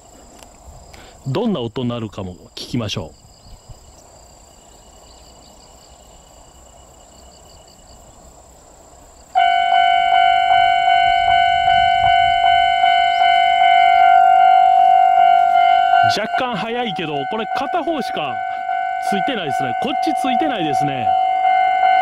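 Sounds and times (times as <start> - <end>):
insects chirping: 0.0 - 22.0
level crossing warning bell: 9.4 - 22.0.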